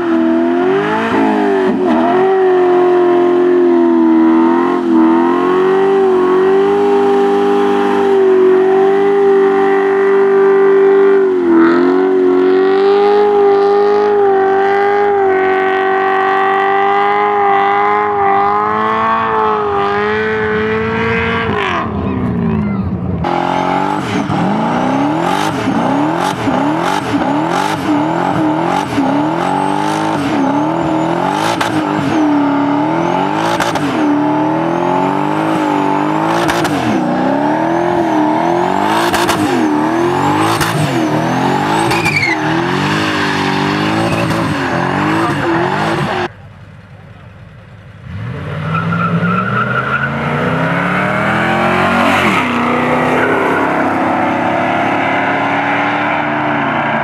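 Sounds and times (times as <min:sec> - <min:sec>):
car engine revving: 0:00.0 - 0:57.0
car pulling away: 0:00.0 - 0:57.0
tyres spinning on road: 0:23.1 - 0:57.0.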